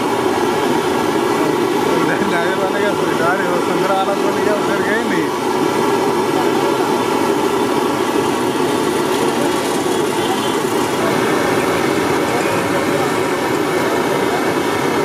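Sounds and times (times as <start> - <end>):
food sizzling in oil: 7.4 - 14.8.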